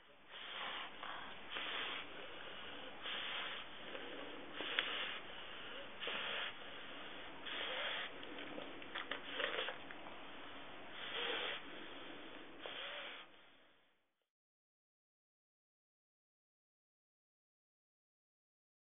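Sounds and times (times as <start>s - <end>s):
dog wheezy breathing: 0.0s - 14.0s
dog rasping snorts: 0.3s - 6.7s, 7.4s - 9.8s, 10.9s - 11.7s, 12.6s - 13.3s.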